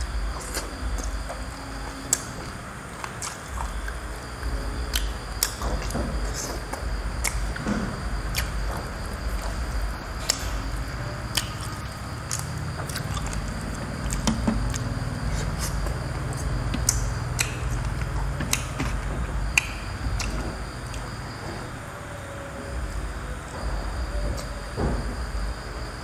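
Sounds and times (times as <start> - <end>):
person chewing food: 0.0 - 10.6, 11.2 - 21.4
low background hum: 0.0 - 26.0
wet mouth clicks and smacks: 11.3 - 13.5, 15.6 - 19.0.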